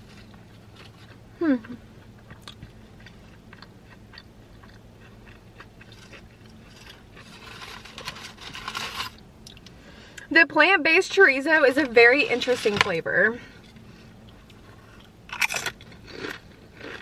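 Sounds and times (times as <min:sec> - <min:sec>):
chewing food: 0:00.0 - 0:08.2, 0:13.6 - 0:17.0
steady low hum: 0:00.0 - 0:17.0
foil wrapper crinkling: 0:06.8 - 0:09.2.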